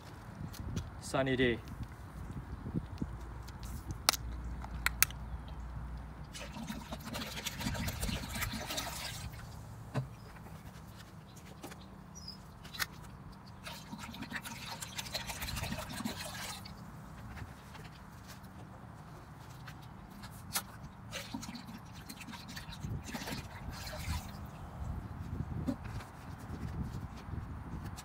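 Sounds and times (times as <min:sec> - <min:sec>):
drink pouring and splashing: 0:06.2 - 0:09.6, 0:13.6 - 0:16.8, 0:20.6 - 0:24.6.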